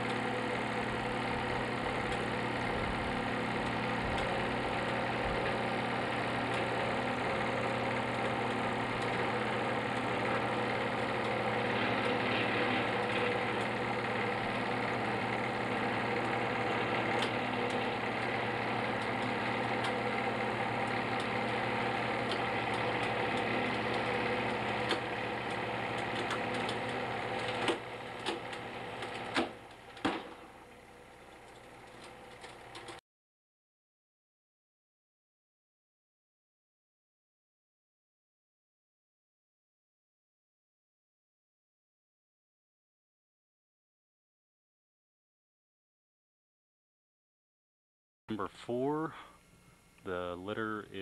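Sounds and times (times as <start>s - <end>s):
test rig motor running: 0.0s - 33.0s.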